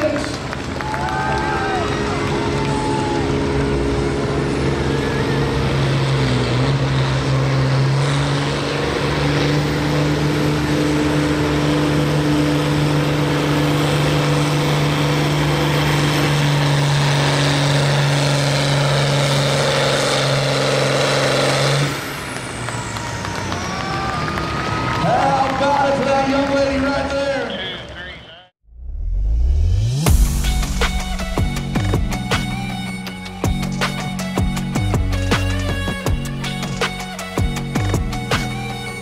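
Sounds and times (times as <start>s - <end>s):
tractor engine at full throttle: 0.0s - 24.8s, 30.0s - 39.0s
high whine: 28.7s - 39.0s.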